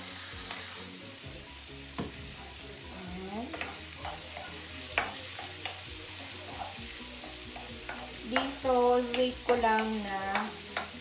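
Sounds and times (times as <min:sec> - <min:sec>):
spatula stirring in a pan: 0:00.0 - 0:11.0
vegetables sizzling in a frying pan: 0:00.0 - 0:11.0
spatula knocking against pan: 0:02.0 - 0:02.3.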